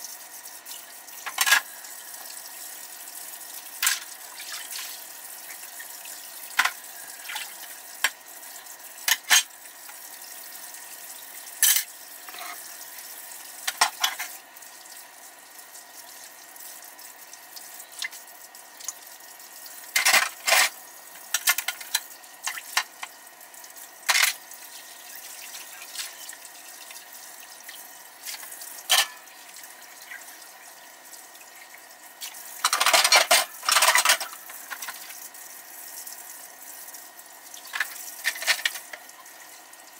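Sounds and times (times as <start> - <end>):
faucet running into sink: 0.2 - 39.9
dish clattering into drying rack: 28.9 - 29.2
dishes clinking: 28.9 - 29.2.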